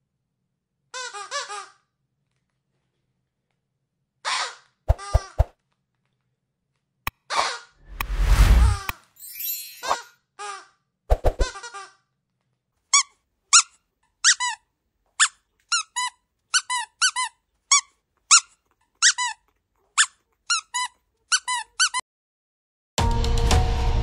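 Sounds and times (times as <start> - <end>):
squeaky dog toy squeaks: 11.4 - 12.0, 12.9 - 14.6, 15.2 - 22.0.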